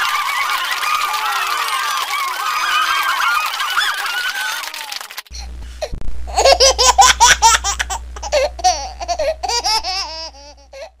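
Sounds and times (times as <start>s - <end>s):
high-pitched laughter: 0.0s - 5.1s, 6.3s - 10.7s
steady low hum: 5.3s - 11.0s.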